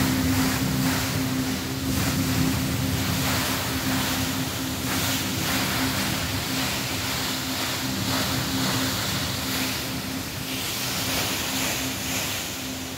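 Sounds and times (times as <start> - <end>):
waterfall splashing into pool: 0.0 - 9.8
low hum: 0.0 - 12.9.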